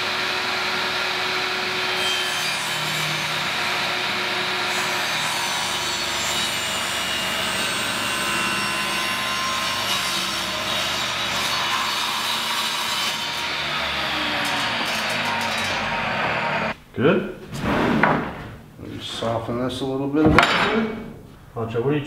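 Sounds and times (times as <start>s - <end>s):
table saw ripping wood: 0.1s - 16.8s.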